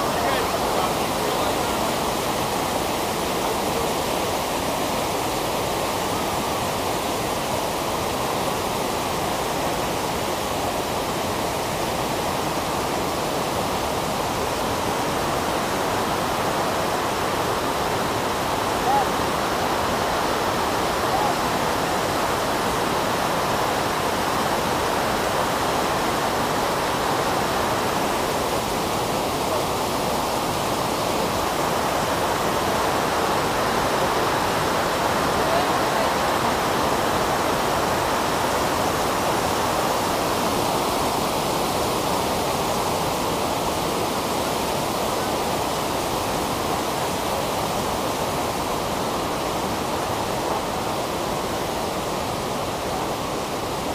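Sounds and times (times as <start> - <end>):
waterfall rushing: 0.0 - 53.9.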